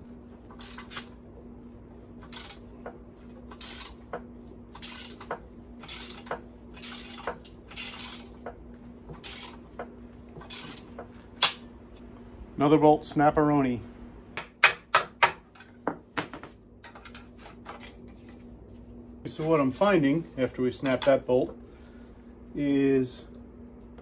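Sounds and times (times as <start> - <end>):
ratchet clicking: 3.5 - 4.0, 4.8 - 8.4.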